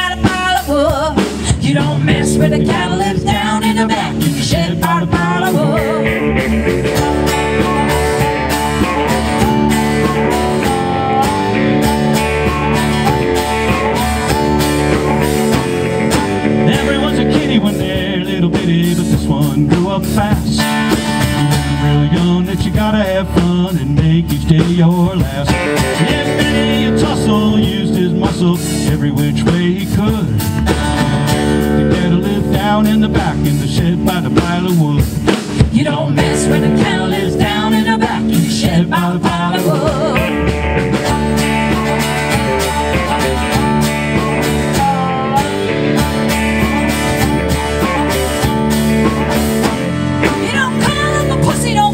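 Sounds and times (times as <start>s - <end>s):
live country blues band: 0.0s - 51.9s.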